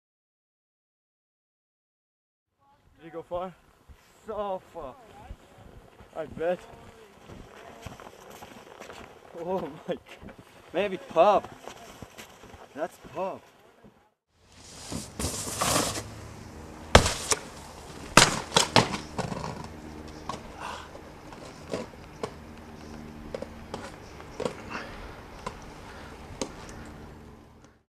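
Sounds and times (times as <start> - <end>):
snowboard sliding on rail and snow: 14.4 - 16.3
steady low hum: 14.4 - 27.8.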